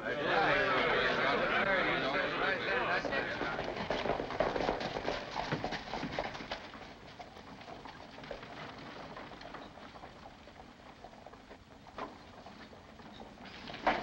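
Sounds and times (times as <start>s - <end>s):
horse hooves clip-clopping on dirt: 2.9s - 14.0s.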